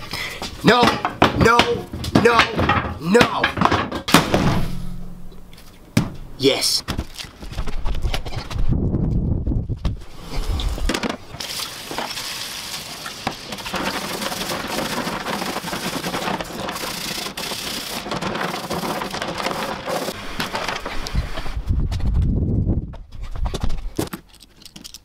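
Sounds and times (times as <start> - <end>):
bristle brush scrubbing chain: 13.7 - 20.2.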